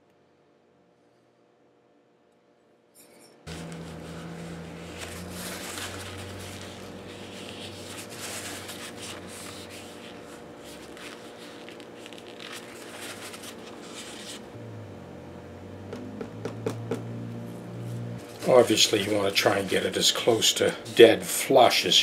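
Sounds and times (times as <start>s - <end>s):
steady low hum: 3.4s - 22.0s
paper towel rubbing on wood: 3.5s - 14.5s, 18.3s - 22.0s.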